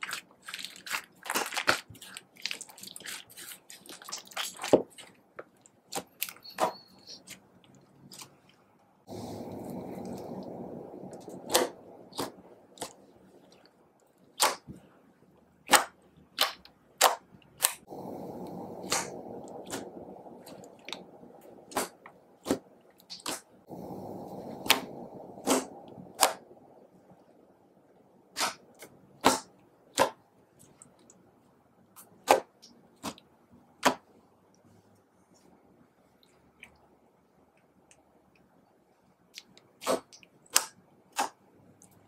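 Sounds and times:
wet slime squishing: 0.0 - 8.8, 9.6 - 17.9, 18.7 - 23.6, 35.4 - 42.0.

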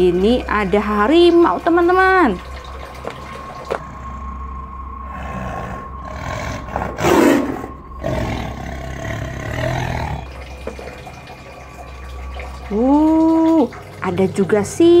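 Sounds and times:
tigers growling and roaring: 5.0 - 10.4.

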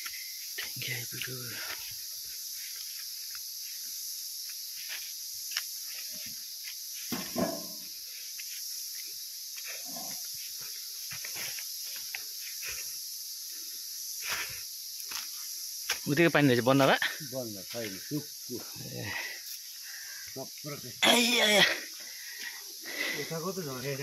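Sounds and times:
footsteps on forest path: 0.0 - 12.9, 14.3 - 16.1, 21.8 - 23.2
high-pitched insect chorus: 0.0 - 24.0.

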